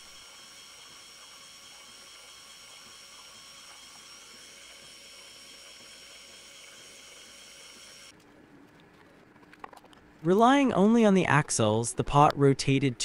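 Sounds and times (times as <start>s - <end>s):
gear motor whining: 0.0s - 8.1s.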